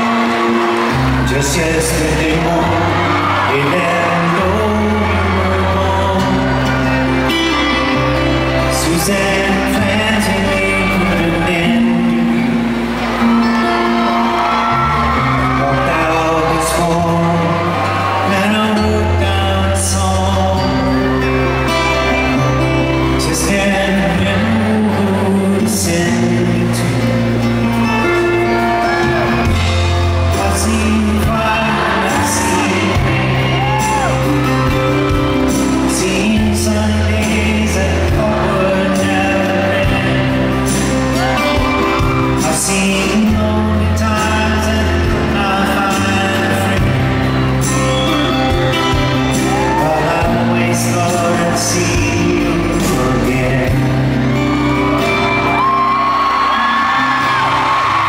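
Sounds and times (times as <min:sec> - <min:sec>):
acoustic guitars strummed: 0:00.0 - 0:58.0
people singing: 0:30.3 - 0:34.1.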